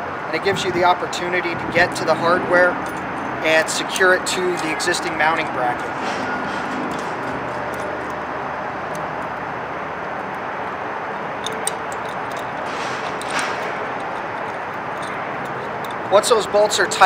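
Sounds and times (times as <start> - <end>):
outdoor background noise: 0.0 - 17.0
bolt hardware clicking: 10.1 - 16.1.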